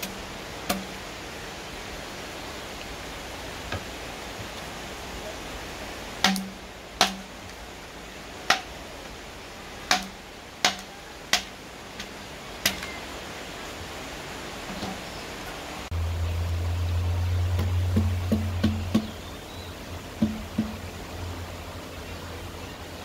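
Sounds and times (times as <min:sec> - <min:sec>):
steady hiss: 0:00.0 - 0:23.0.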